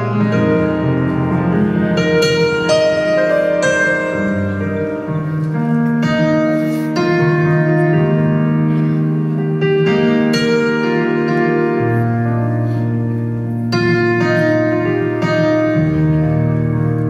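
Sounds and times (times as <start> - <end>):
slow piano ballad: 0.0 - 17.0.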